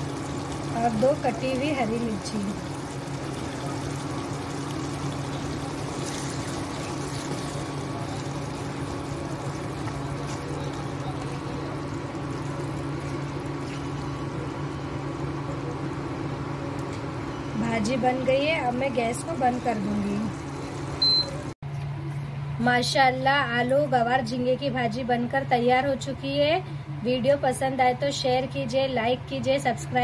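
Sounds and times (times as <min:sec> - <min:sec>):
food sizzling in a pan: 0:00.0 - 0:14.4
low steady hum: 0:00.0 - 0:30.0.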